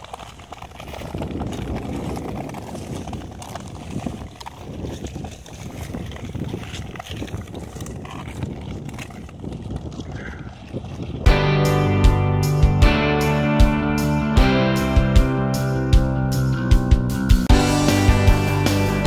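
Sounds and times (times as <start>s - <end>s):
skates scraping on ice: 0.0s - 11.4s.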